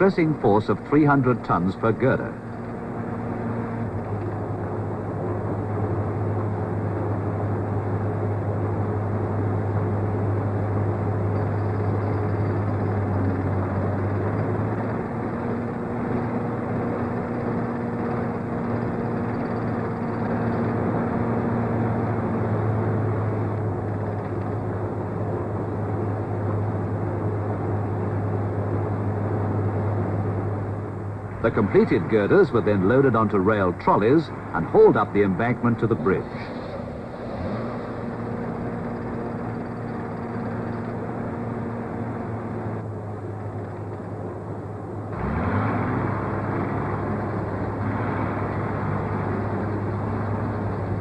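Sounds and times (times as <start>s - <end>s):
machinery drone: 0.0s - 51.0s
steady tones: 31.0s - 41.7s.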